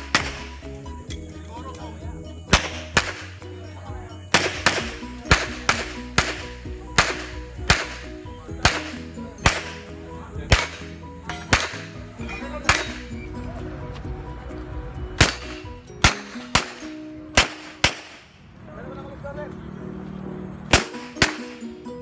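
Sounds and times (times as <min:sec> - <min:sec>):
handgun shots: 0:00.0 - 0:00.5, 0:02.5 - 0:03.3, 0:04.3 - 0:09.9, 0:10.5 - 0:12.0, 0:12.7 - 0:13.0, 0:15.2 - 0:18.3, 0:20.7 - 0:21.6
background music: 0:00.0 - 0:22.0.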